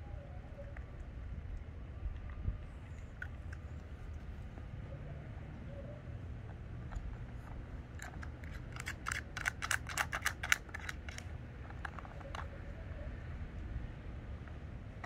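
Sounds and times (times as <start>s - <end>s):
low steady rumble: 0.0s - 15.0s
plastic puzzle toy clicking: 7.9s - 12.6s.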